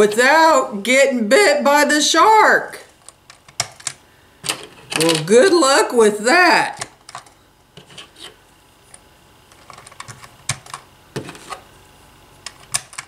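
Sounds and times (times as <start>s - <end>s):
plastic toy pieces clicking and knocking: 3.3s - 5.3s.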